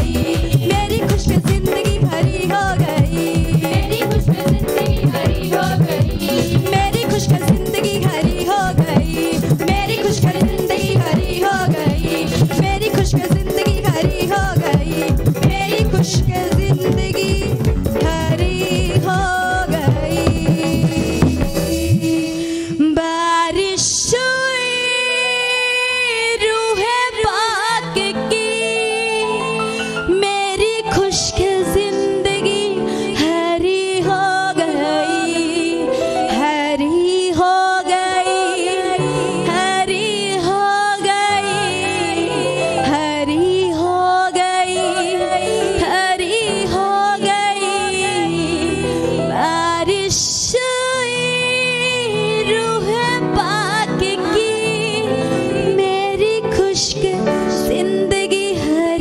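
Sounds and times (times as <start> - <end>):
instrumental accompaniment: 0.0 - 22.9
musical backing: 0.0 - 59.0
woman singing worship song: 0.0 - 59.0.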